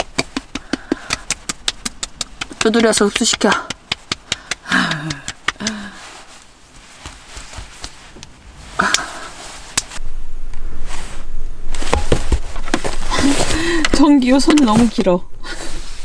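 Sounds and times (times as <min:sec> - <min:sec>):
bedding rustling: 0:06.0 - 0:10.0, 0:10.8 - 0:16.0.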